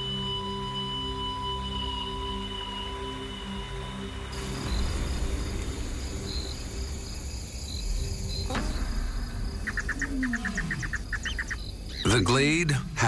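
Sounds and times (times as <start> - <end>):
insects chirping: 0.0 - 13.0
steady low rumble: 4.4 - 13.0.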